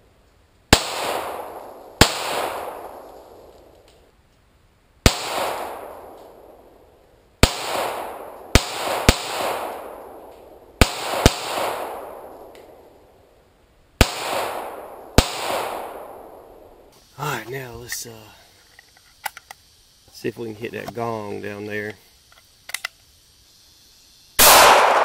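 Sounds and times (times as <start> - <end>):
gunshots with echo: 0.8 - 3.2, 5.1 - 6.4, 7.4 - 12.5, 14.0 - 16.6, 24.4 - 25.0.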